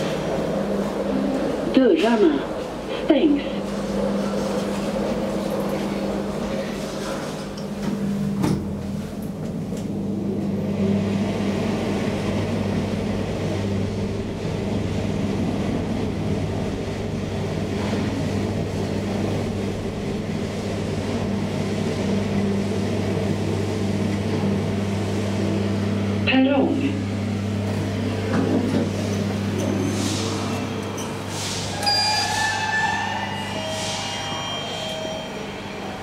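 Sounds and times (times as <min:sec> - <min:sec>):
elevator motor hum: 0:00.0 - 0:36.0
elevator doors closing knock: 0:07.7 - 0:08.8.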